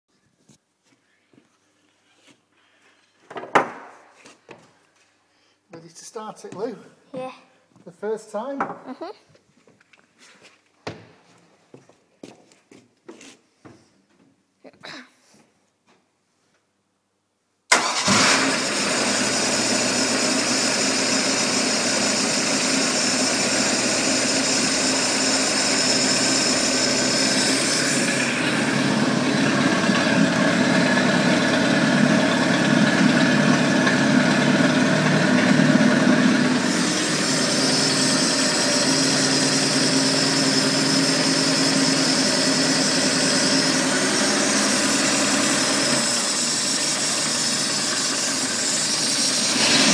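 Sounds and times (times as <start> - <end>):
boat engine starting and idling: 17.7 - 36.8.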